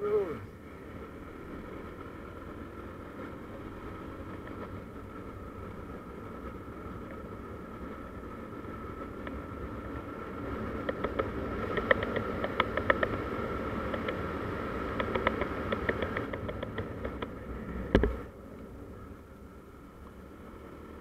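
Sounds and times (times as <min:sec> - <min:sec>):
motor scooter engine hum: 0:00.0 - 0:21.0
sharp ticks and rattles: 0:02.4 - 0:18.2.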